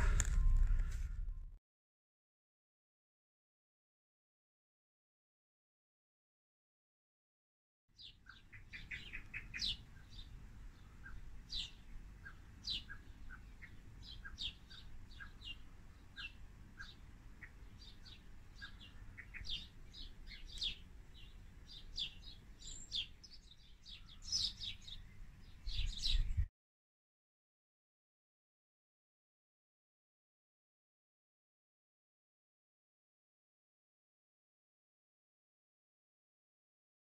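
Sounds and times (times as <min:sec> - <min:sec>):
low rumble: 0:00.0 - 0:01.6
small birds chirping: 0:08.0 - 0:26.5.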